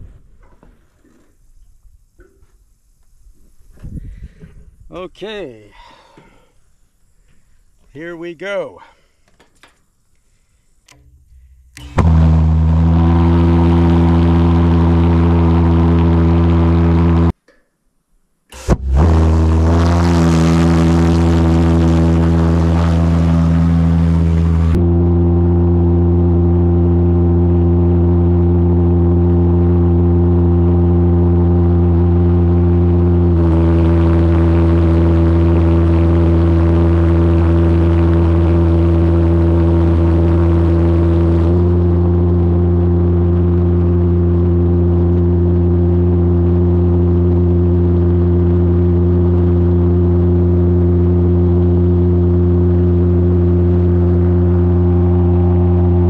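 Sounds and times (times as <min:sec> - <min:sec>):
pulsejet engine droning: 0:10.3 - 0:17.4, 0:18.5 - 0:56.0.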